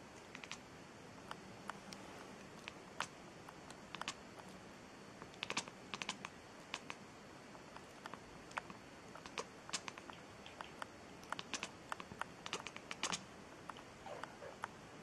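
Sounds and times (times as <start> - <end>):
faint room hiss: 0.0 - 15.0
sharp clicks and taps: 2.6 - 4.5, 5.2 - 7.0, 7.7 - 14.8.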